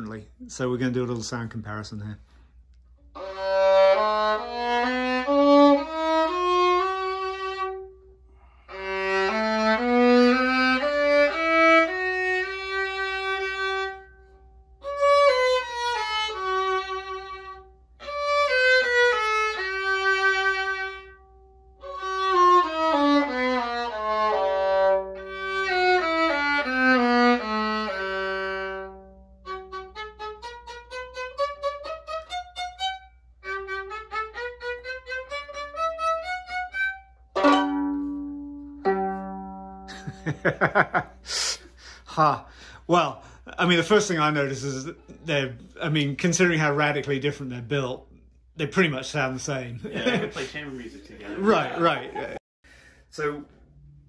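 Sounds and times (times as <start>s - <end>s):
violin bowed scales: 3.1s - 41.2s.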